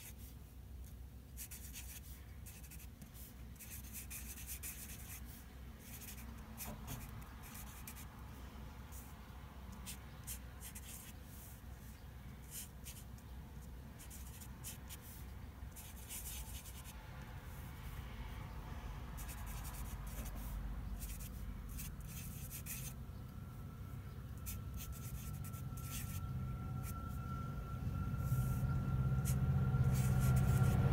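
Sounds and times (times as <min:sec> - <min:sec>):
faint steady tone: 0:00.0 - 0:30.9
marker scratching on paper: 0:01.4 - 0:08.1, 0:08.9 - 0:09.2, 0:09.8 - 0:17.0, 0:19.2 - 0:23.0, 0:24.4 - 0:27.0, 0:28.2 - 0:30.9.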